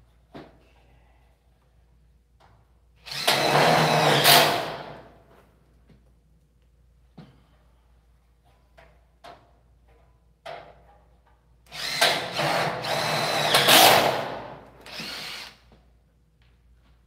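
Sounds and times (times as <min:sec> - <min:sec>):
cordless drill driving screws: 0:03.1 - 0:04.8, 0:11.7 - 0:15.6.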